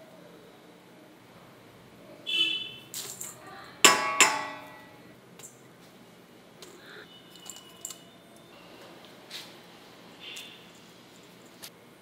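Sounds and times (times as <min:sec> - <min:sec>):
steel bowl ringing: 0:03.9 - 0:05.0.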